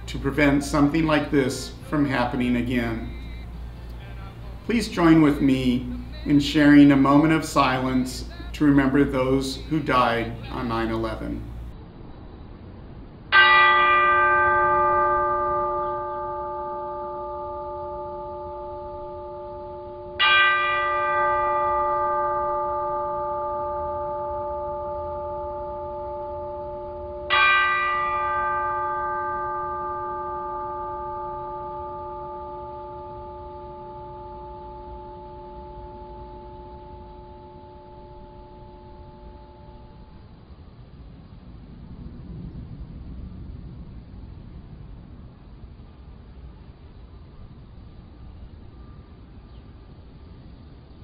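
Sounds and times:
bell tolling: 0:00.0 - 0:11.7, 0:13.4 - 0:40.3.

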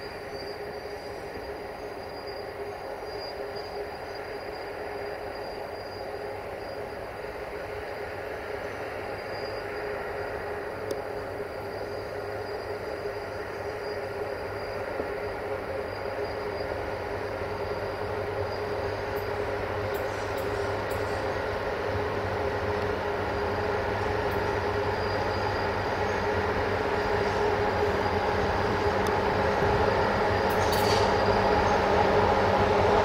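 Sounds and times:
electric locomotive hum and whine: 0:00.0 - 0:33.0
wheels rumbling on rails: 0:00.0 - 0:33.0.

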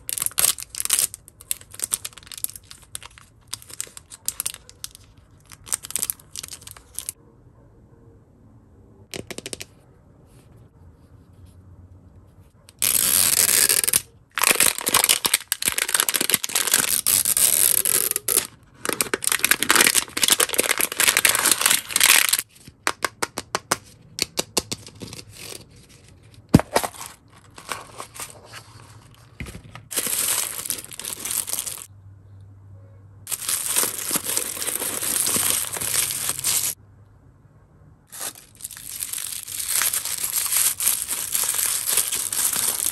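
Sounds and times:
plastic wrapper tearing and crackling: 0:00.0 - 0:07.2, 0:12.8 - 0:22.5, 0:29.9 - 0:31.9, 0:33.3 - 0:36.8, 0:38.1 - 0:42.9.

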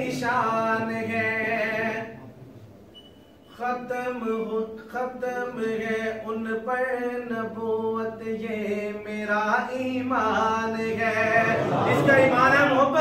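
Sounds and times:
man chanting: 0:03.6 - 0:13.0.

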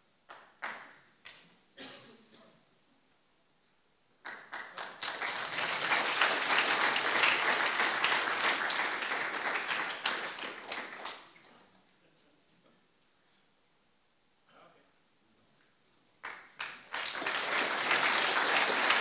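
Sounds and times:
audience applauding: 0:04.2 - 0:11.6, 0:16.2 - 0:19.0.

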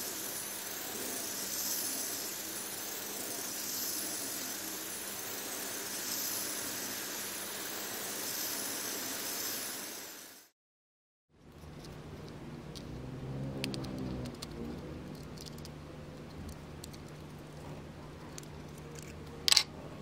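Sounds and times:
small electric motor whirring: 0:00.0 - 0:10.4.

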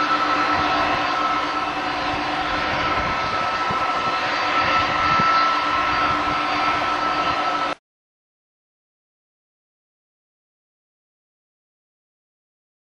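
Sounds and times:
jet engine roar: 0:00.0 - 0:07.8
thin fan whine: 0:00.0 - 0:07.8.

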